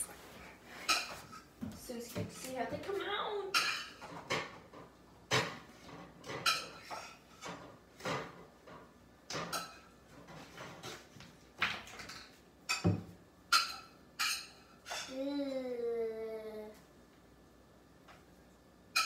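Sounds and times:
dishes and utensils clinking: 0.8s - 1.5s, 3.5s - 11.2s, 11.9s - 15.2s.

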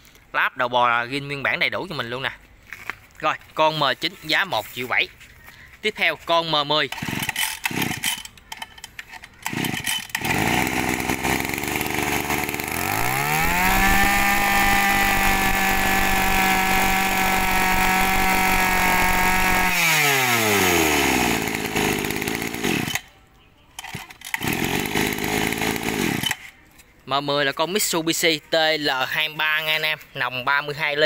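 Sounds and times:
brush cutter engine revving: 6.4s - 8.4s, 9.1s - 23.1s, 23.9s - 26.6s.

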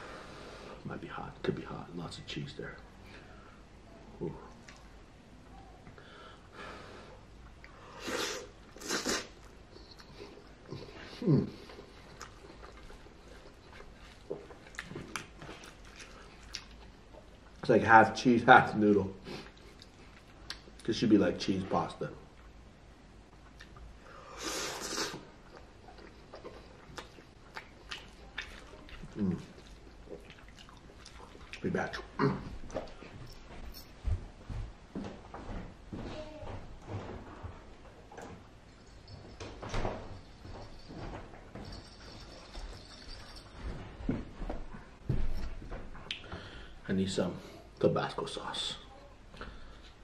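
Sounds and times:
soft chewing with mouth clicks: 4.2s - 6.0s, 7.4s - 17.6s, 19.2s - 20.9s, 23.3s - 34.0s, 40.2s - 46.7s
man eating noodles breathy: 6.6s - 14.8s.

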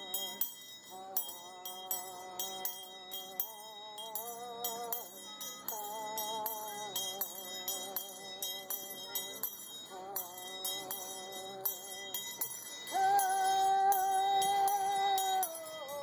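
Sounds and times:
handbells ringing in steady beat: 0.0s - 16.0s
woman singing long held notes: 12.9s - 16.0s.

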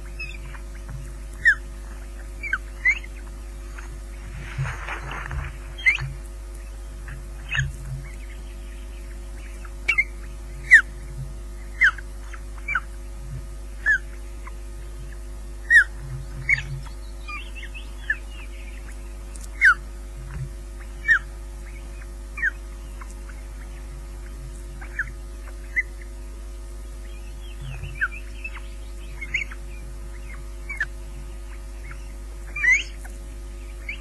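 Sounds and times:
electrical hum: 0.0s - 34.0s
osprey whistled chirps: 31.5s - 33.0s.

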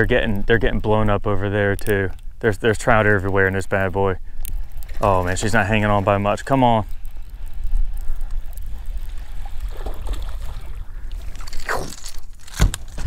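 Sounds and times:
water lapping against boat: 8.3s - 13.0s.

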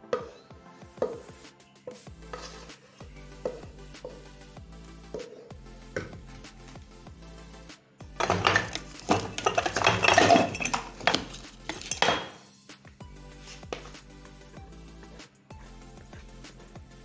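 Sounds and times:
background music: 0.0s - 17.0s
utensil scraping metal cookware: 8.2s - 12.4s.

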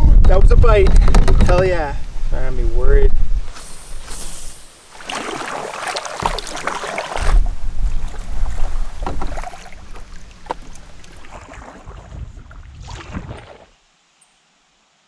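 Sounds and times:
paddle splashing in water: 4.9s - 13.8s.

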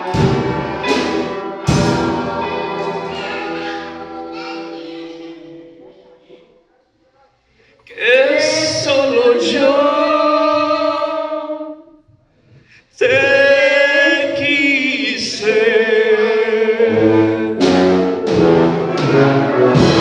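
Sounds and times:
orchestra playing with brass: 0.0s - 4.7s, 16.8s - 20.0s
man and woman singing ballad: 7.9s - 11.8s, 13.0s - 17.4s.

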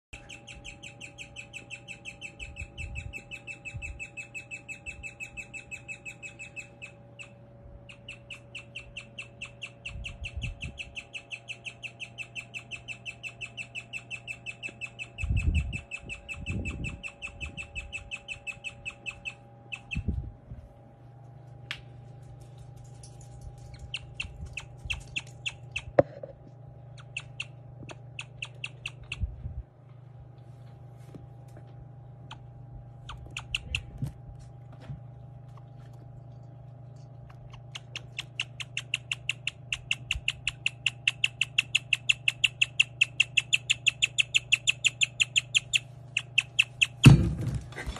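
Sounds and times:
guinea pig chirping: 0.1s - 20.2s, 23.6s - 26.0s, 26.8s - 29.3s, 32.2s - 34.1s, 37.1s - 47.2s.

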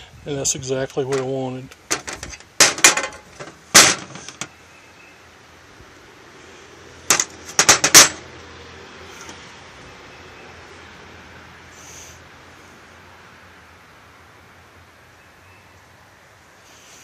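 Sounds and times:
metal parts clattering on workbench: 1.9s - 4.5s, 7.1s - 8.2s.

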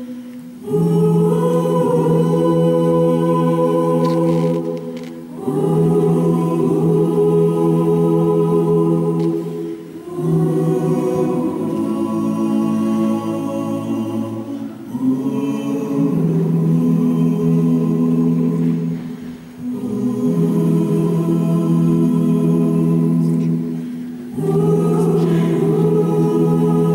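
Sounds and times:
gospel choir singing unaccompanied: 0.0s - 26.9s.

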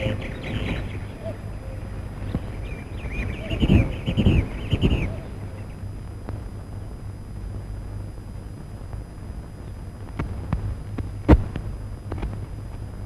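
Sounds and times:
film soundtrack hum and hiss: 0.0s - 13.0s
loud pop: 11.2s - 11.6s.

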